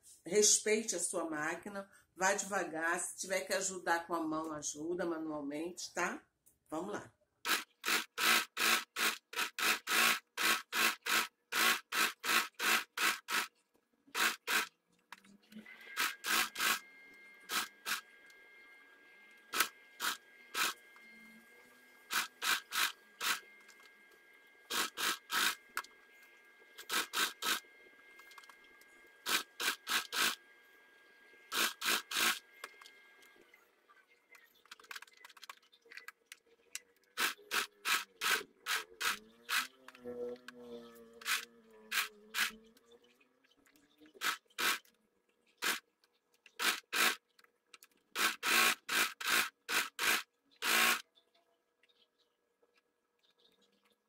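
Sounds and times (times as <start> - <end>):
sewing machine stitching: 7.4 - 13.5, 14.1 - 14.7, 15.6 - 16.8, 22.1 - 23.8, 24.7 - 25.8, 26.8 - 27.6, 29.2 - 30.4, 31.5 - 32.4, 37.2 - 40.0, 41.1 - 42.6, 46.6 - 47.2, 48.1 - 51.0.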